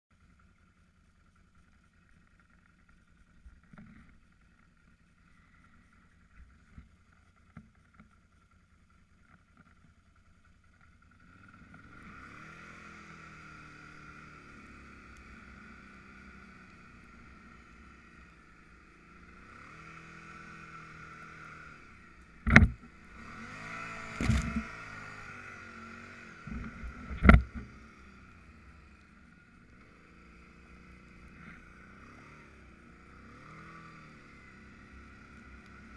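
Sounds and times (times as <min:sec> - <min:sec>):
atv engine in deep snow: 0:00.1 - 0:35.9.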